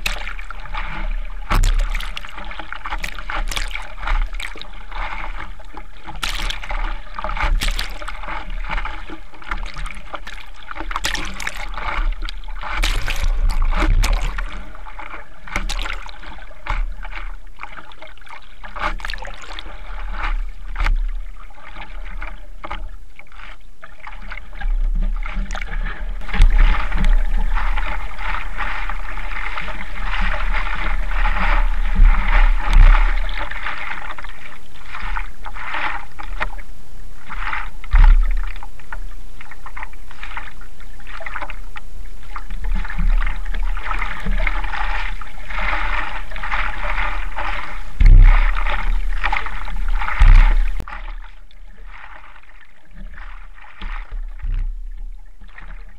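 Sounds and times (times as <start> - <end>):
water splashing against surfboard: 0.0 - 55.9
steady low rumble: 41.6 - 50.9.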